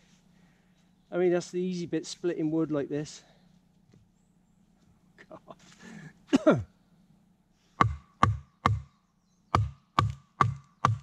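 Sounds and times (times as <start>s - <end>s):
machete splitting wood: 7.8s - 8.9s, 9.6s - 11.0s.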